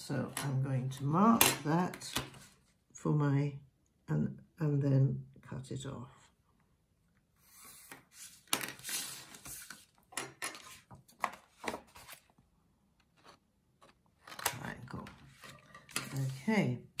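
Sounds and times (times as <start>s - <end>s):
paper rustling: 7.4s - 12.4s.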